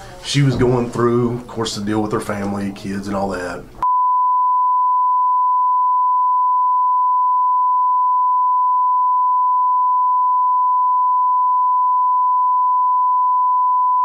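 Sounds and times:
steady censor beep tone: 3.8s - 14.0s.

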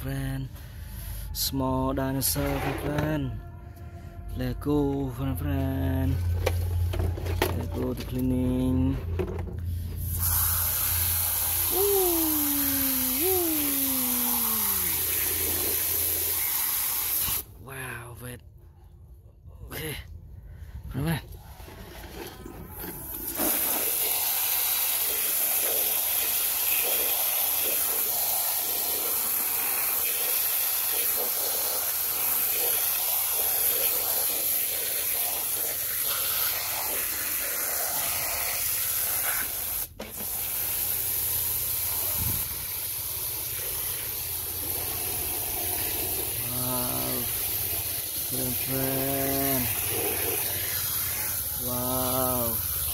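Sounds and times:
water jet spraying and splashing: 10.0s - 17.5s, 23.1s - 52.9s.

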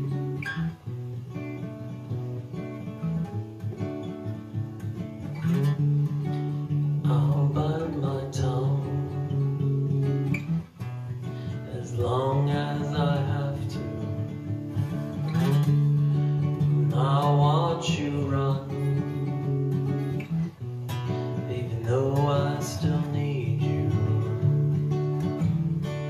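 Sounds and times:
acoustic guitar strumming: 0.0s - 26.0s
man singing: 7.0s - 9.7s, 11.5s - 14.3s, 16.6s - 19.6s, 21.3s - 24.8s.

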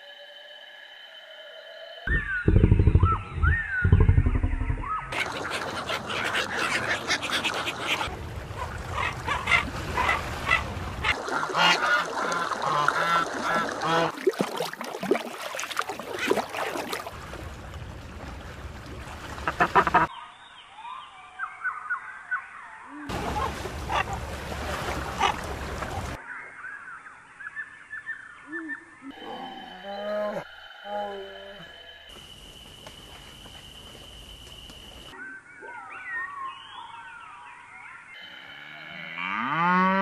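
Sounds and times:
faint bird chirps: 2.1s - 5.2s
ducks quacking and honking: 4.9s - 8.1s, 8.9s - 14.1s, 19.4s - 20.1s, 23.1s - 24.2s.

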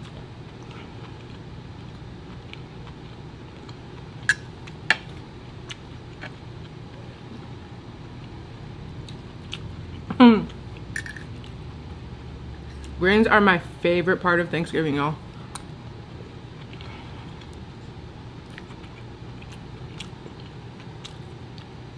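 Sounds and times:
metal fork clinking on a plate: 11.0s - 11.3s.

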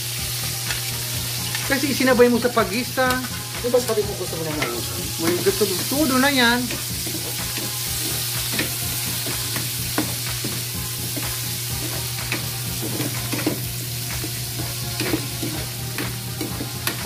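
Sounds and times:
vegetables sizzling in oil: 0.0s - 17.0s
spatula scraping pan: 4.6s - 17.0s.

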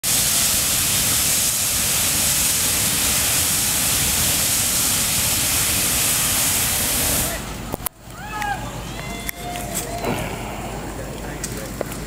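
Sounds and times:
fire rushing hiss: 0.0s - 7.8s
low rumble of fire: 0.0s - 12.0s.

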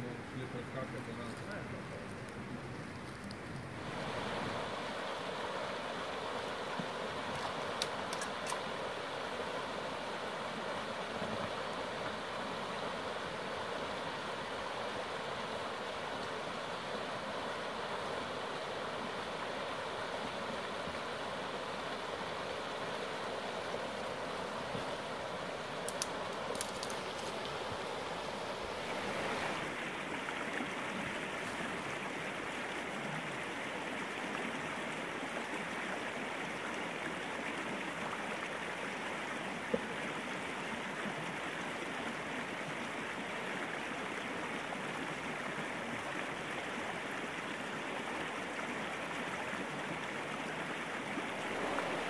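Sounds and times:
river rushing over stones: 0.0s - 52.0s
faint clicks: 0.9s - 3.7s, 7.3s - 8.6s, 25.8s - 27.5s.

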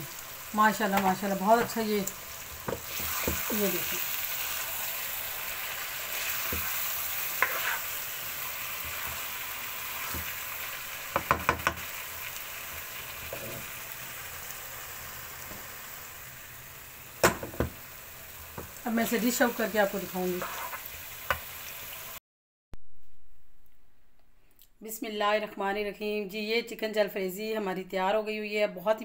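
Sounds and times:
food sizzling in a pan: 0.0s - 22.2s
spatula knocking on pan: 11.1s - 11.8s, 17.2s - 17.8s.

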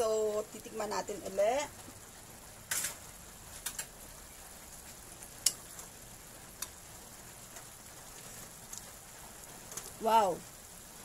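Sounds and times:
vegetables sizzling in a wok: 0.0s - 11.0s
utensil clicking against pan: 5.4s - 5.6s.

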